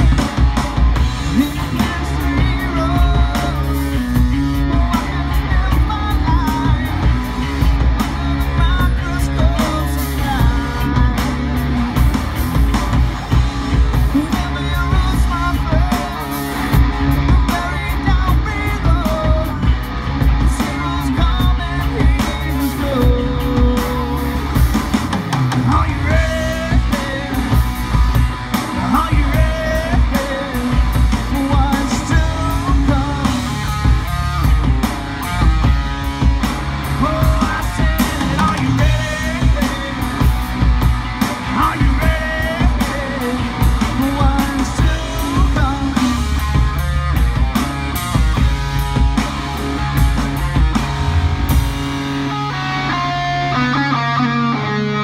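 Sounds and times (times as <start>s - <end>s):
rock band playing: 0.0s - 55.0s
man singing: 1.1s - 12.0s, 13.7s - 34.5s, 36.7s - 46.8s.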